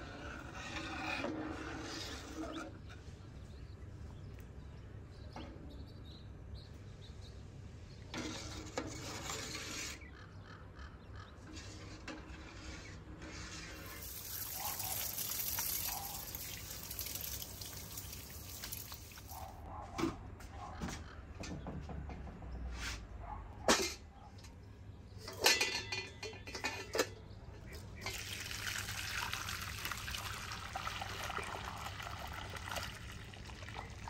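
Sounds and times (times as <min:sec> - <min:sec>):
water running from a hose: 0:13.7 - 0:19.6, 0:28.0 - 0:34.0
metal spoon clinking in a pot: 0:25.3 - 0:27.2.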